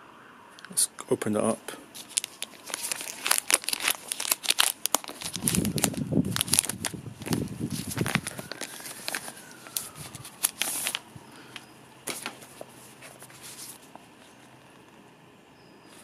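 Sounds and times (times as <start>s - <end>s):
plastic wrapping crinkling and tearing: 1.9s - 14.4s
paper rustling: 1.9s - 14.9s.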